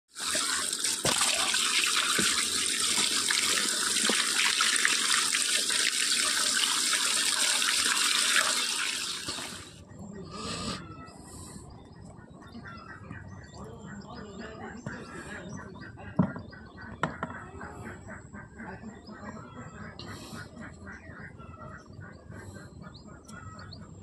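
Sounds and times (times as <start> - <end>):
water gushing and splashing: 0.1 - 9.8.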